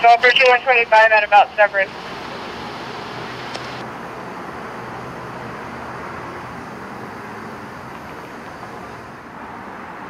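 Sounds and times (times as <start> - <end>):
helicopter cabin rushing noise: 6.5 - 9.2.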